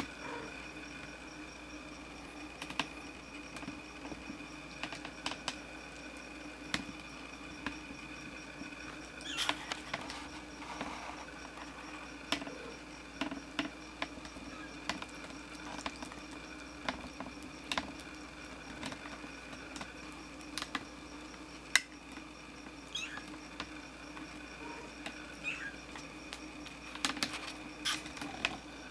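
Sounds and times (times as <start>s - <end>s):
faint steady hum: 0.0s - 28.9s
kittens clicking and scratching: 2.5s - 5.6s, 8.8s - 20.9s, 22.9s - 28.9s.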